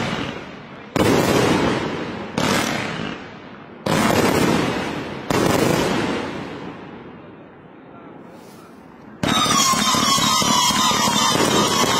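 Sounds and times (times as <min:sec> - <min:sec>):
fireworks bangs: 0:00.0 - 0:07.2, 0:08.6 - 0:11.9.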